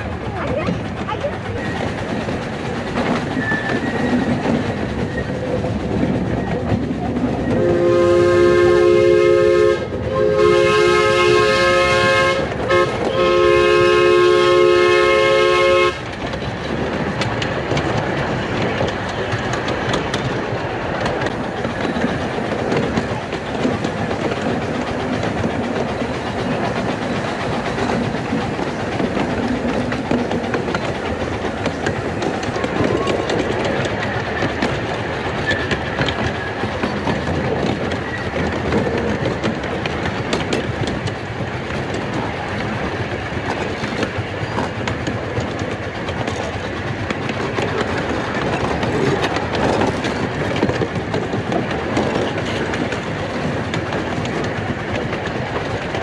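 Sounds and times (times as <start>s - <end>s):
train wheels clattering on rails: 0.0s - 56.0s
steam whistle blasts: 7.6s - 16.0s.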